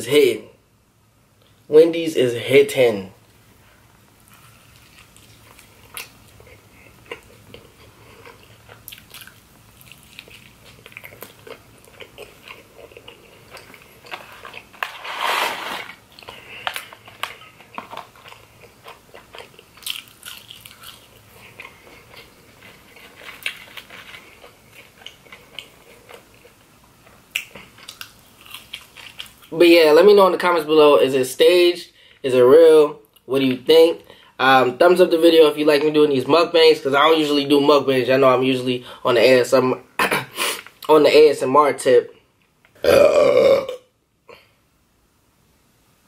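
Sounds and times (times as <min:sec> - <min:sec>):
biting and chewing food: 0:04.2 - 0:29.5
paper carton rustling: 0:14.8 - 0:16.0.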